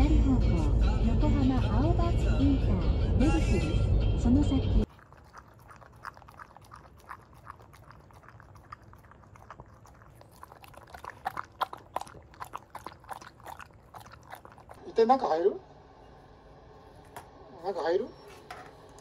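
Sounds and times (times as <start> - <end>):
dog lapping and chewing food: 4.8 - 14.9.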